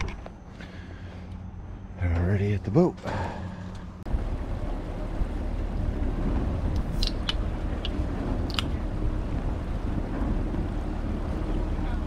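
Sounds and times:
boat engine rumbling: 0.0 - 12.0
wind: 0.0 - 12.0
water noise: 4.1 - 12.0.

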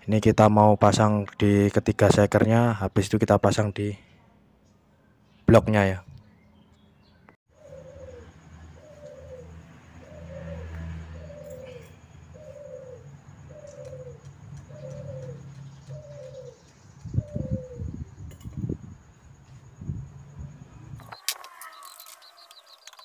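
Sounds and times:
pigeon cooing: 7.5 - 18.0.

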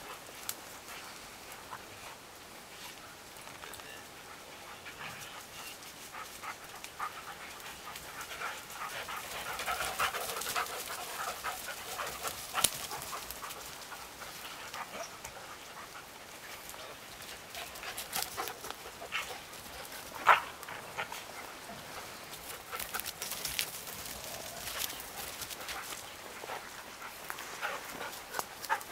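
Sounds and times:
rustling through brush: 0.0 - 28.9
dogs panting: 4.1 - 28.9.

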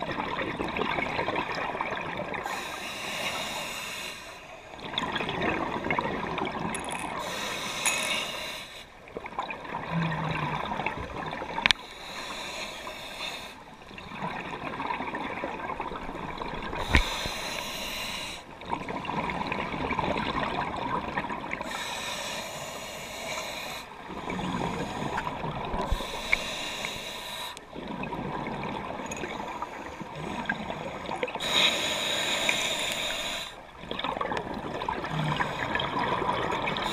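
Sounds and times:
regulator breath hissing: 16.8 - 18.4, 21.6 - 23.9, 25.9 - 27.6, 31.4 - 33.6.

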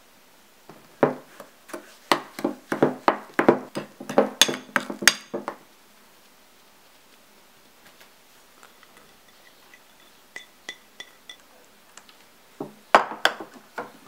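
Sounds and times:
spoon clinking on bowl: 9.0 - 11.5.

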